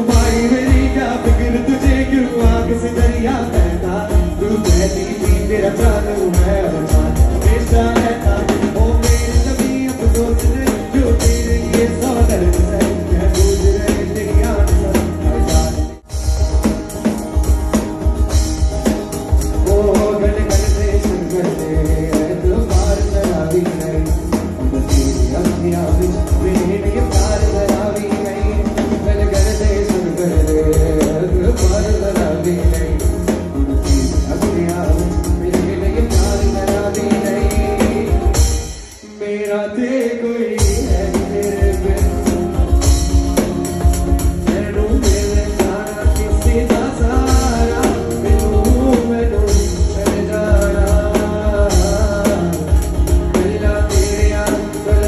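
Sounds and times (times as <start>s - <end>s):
drum kit steady beat: 0.0s - 55.0s
man singing: 0.0s - 55.0s
strummed acoustic guitar: 39.6s - 55.0s.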